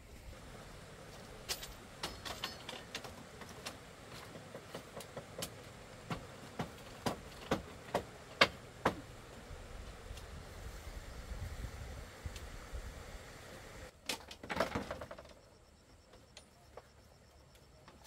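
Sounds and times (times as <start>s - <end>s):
hand tool striking wood: 4.3s - 9.1s.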